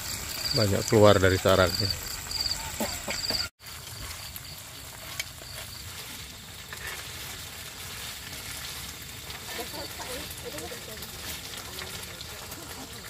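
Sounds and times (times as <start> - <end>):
crickets chirping: 0.0 - 7.1
food sizzling: 0.0 - 13.0.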